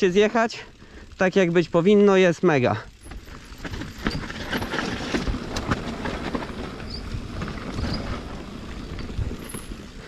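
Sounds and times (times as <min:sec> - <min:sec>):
bike tyres on dirt trail: 0:00.0 - 0:10.0
chain and frame rattling: 0:02.7 - 0:10.0.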